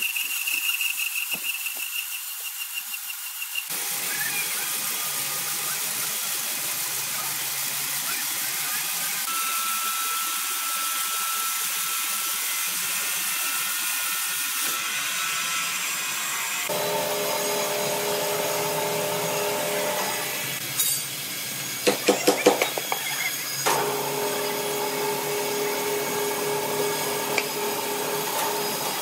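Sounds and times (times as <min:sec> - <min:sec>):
band saw cutting wood: 0:09.1 - 0:29.0
sawmill motor running: 0:09.2 - 0:20.6, 0:23.4 - 0:29.0
thin steady whine: 0:16.6 - 0:20.6, 0:23.7 - 0:29.0.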